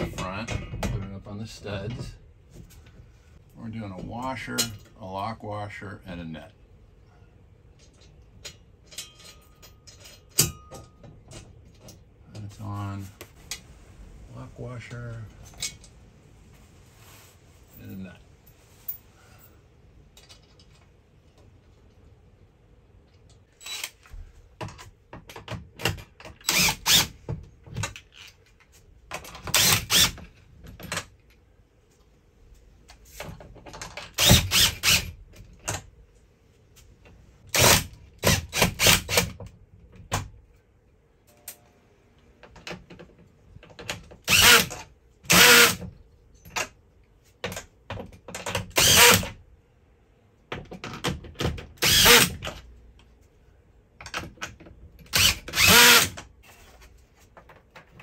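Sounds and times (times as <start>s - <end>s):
cordless drill driving nuts: 26.4s - 27.2s, 29.4s - 30.3s, 34.1s - 35.2s, 37.5s - 39.4s, 44.2s - 45.8s, 48.7s - 49.4s, 51.8s - 52.5s, 55.1s - 56.2s.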